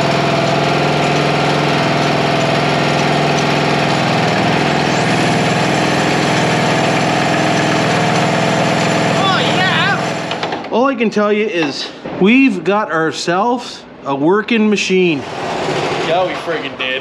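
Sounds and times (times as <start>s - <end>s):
riding mower engine running: 0.0s - 10.7s, 15.2s - 17.0s.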